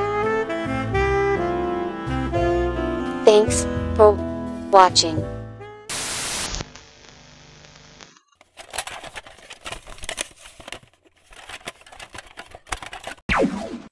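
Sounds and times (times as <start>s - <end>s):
static hiss: 5.9s - 8.2s.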